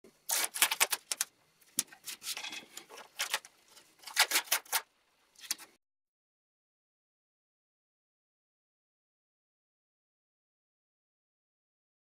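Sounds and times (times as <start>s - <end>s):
tape ripping off roll: 0.3s - 1.3s, 3.2s - 5.7s.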